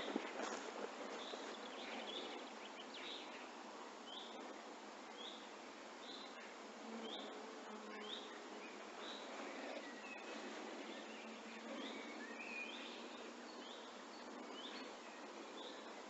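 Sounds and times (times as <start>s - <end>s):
faint outdoor hiss: 0.0s - 16.0s
bird chirping: 6.0s - 15.9s.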